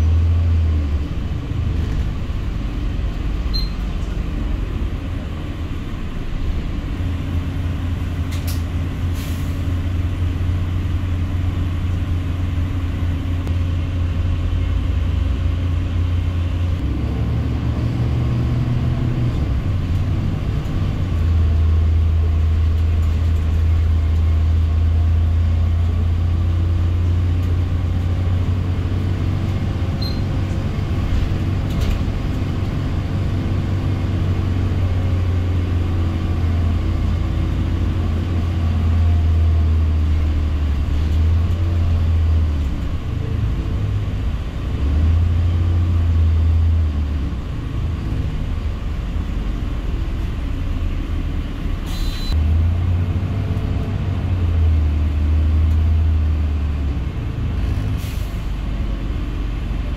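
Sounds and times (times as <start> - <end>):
bus engine and road rumble: 0.0 - 59.9
brief hiss: 51.8 - 52.3.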